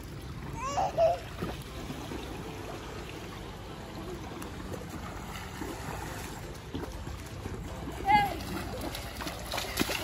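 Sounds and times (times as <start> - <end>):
pool water splashing: 0.0 - 10.0.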